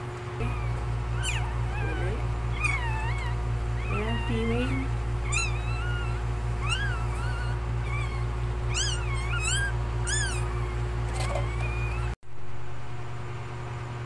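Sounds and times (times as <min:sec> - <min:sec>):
steady low hum: 0:00.0 - 0:14.0
puppy squealing: 0:00.4 - 0:12.2.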